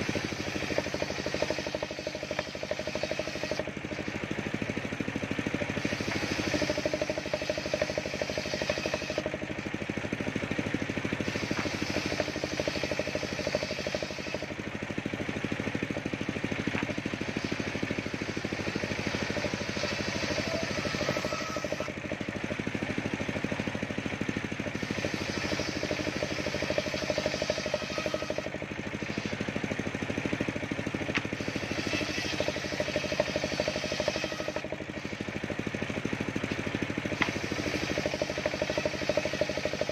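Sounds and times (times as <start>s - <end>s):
table saw hum: 0.0s - 4.7s, 5.5s - 9.7s, 11.1s - 14.7s, 16.6s - 22.2s, 24.7s - 29.7s, 31.0s - 35.6s, 36.5s - 39.9s
saw rasping through wood: 0.0s - 4.8s, 5.4s - 9.7s, 10.6s - 14.9s, 16.7s - 22.2s, 24.6s - 29.9s, 31.0s - 35.9s, 36.5s - 39.9s.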